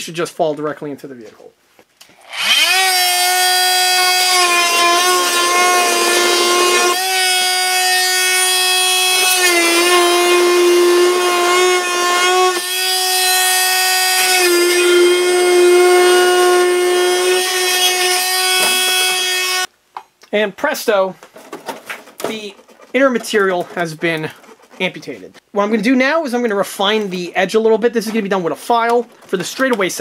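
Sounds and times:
multi-tool cutting plastic: 2.2s - 19.7s.

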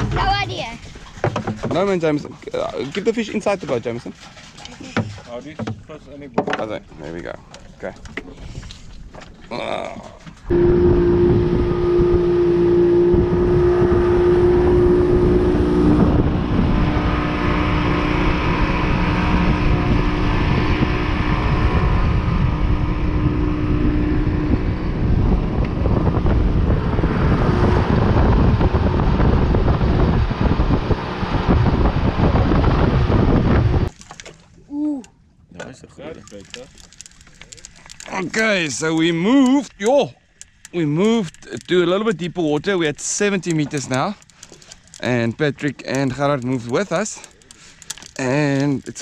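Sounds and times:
boat motor running: 0.0s - 8.4s, 9.0s - 49.0s
wind buffeting microphone: 10.4s - 34.0s.

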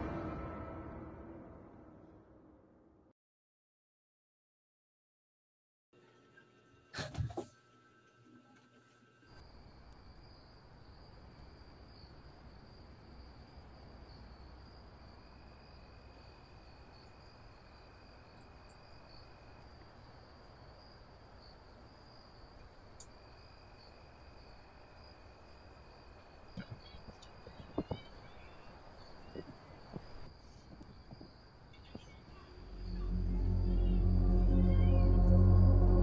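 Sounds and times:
faint low background noise: 9.3s - 36.0s.

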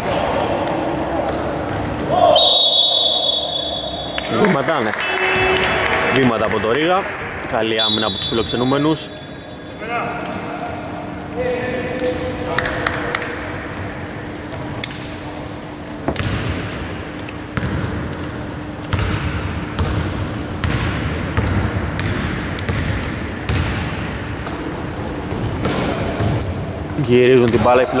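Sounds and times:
sneakers squeaking on floor: 0.0s - 4.3s, 7.8s - 10.9s, 18.6s - 20.0s, 21.4s - 28.0s
basketball bouncing on hardwood: 19.8s - 23.8s.

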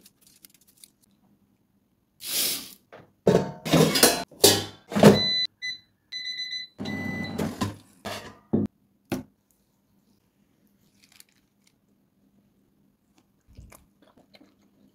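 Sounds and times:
air fryer beeping: 4.4s - 7.7s.

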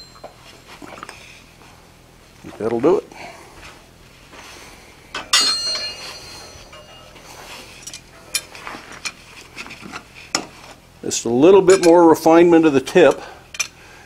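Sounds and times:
steel clanking on anvil: 5.2s - 8.6s, 11.7s - 12.0s.

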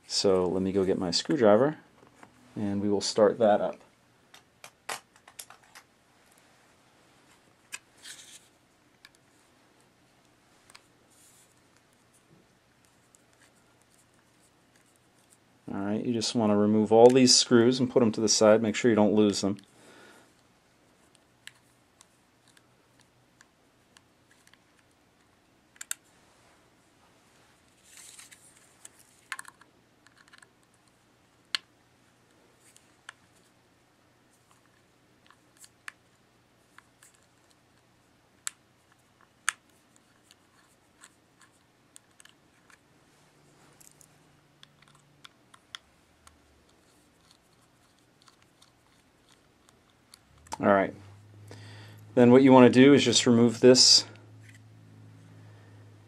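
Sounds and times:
screwdriver clicking and scratching: 38.9s - 42.8s, 44.6s - 50.5s.

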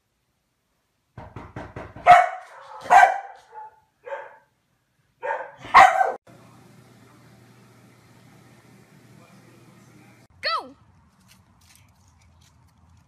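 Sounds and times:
dog barking: 2.0s - 4.5s, 5.2s - 6.2s.

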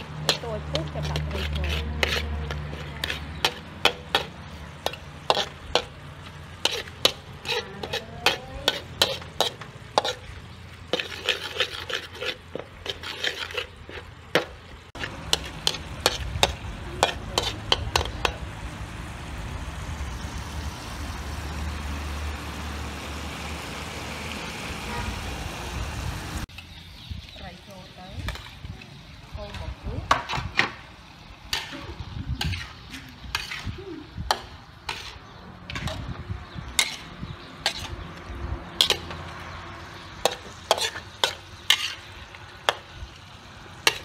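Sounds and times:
metal ladle scraping wok: 0.0s - 18.6s, 29.5s - 44.0s
sauce sizzling: 0.0s - 27.1s.

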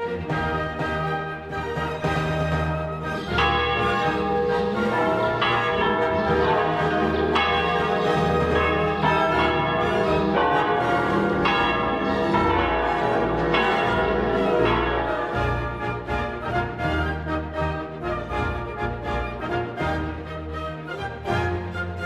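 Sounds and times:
church bells ringing: 0.0s - 20.5s.

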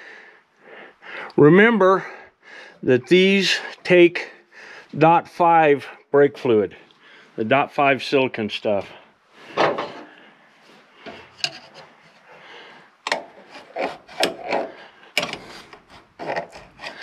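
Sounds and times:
hands rubbing and scraping rubber seal: 13.1s - 17.0s.

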